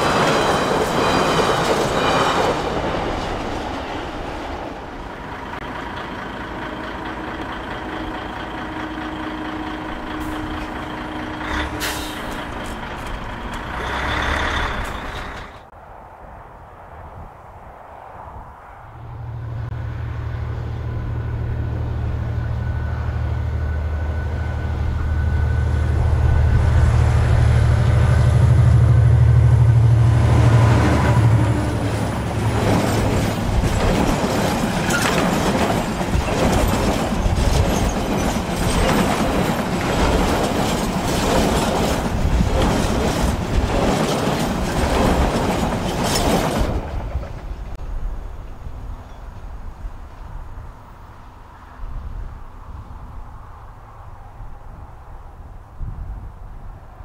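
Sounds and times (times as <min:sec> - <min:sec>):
train wheels clattering over rail joints: 0:00.0 - 0:08.7, 0:09.9 - 0:15.7, 0:31.8 - 0:47.8
diesel locomotive engine passing: 0:00.0 - 0:15.8, 0:17.8 - 0:57.0.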